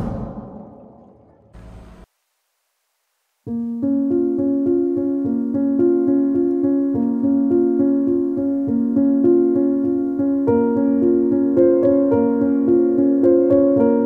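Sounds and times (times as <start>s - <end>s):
keyboard playing repeated chords: 3.5s - 14.0s.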